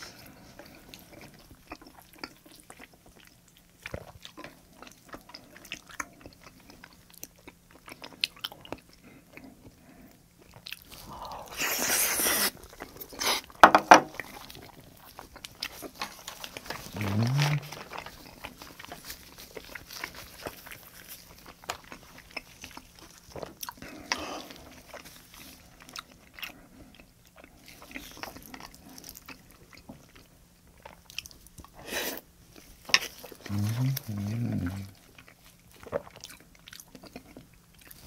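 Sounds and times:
chewing clicks and lip smacks: 0:00.6 - 0:09.8, 0:10.4 - 0:11.1, 0:34.8 - 0:38.0.

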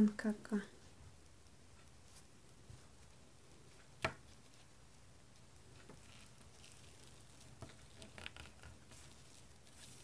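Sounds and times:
rolling pin pressing play dough: 0:05.8 - 0:10.0.

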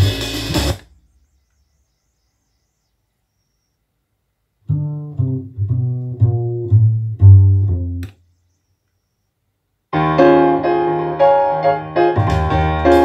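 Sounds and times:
low bass melody: 0:04.6 - 0:08.1, 0:10.0 - 0:13.0.

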